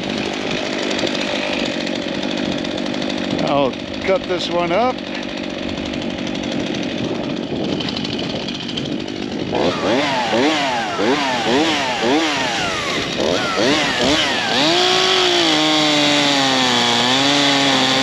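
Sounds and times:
chainsaw idling and revving: 0.0s - 18.0s.

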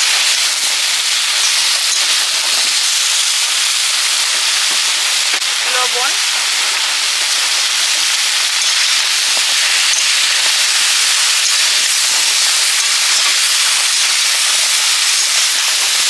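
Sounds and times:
food sizzling in a wok: 0.0s - 16.0s
metal spatula in wok: 8.0s - 16.0s.

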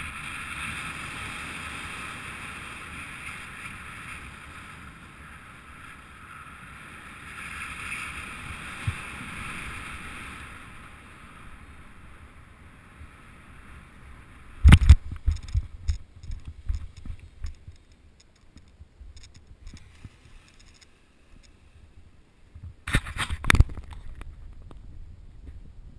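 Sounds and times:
thumps and knocks on grass: 14.6s - 17.8s, 22.6s - 24.6s.

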